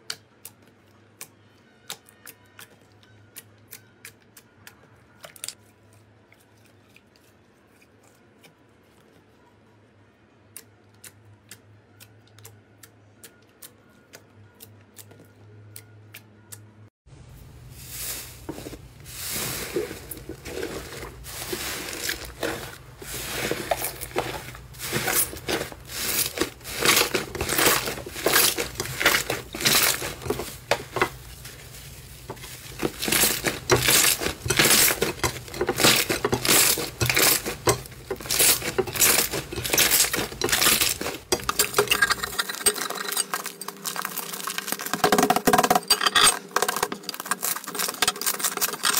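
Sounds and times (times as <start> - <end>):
slime crackling and popping: 43.3 - 45.3, 47.0 - 48.8.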